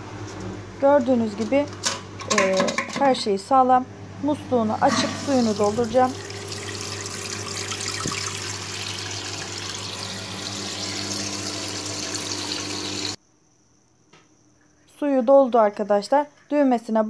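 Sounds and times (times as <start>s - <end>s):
toilet cistern filling: 4.8s - 13.2s.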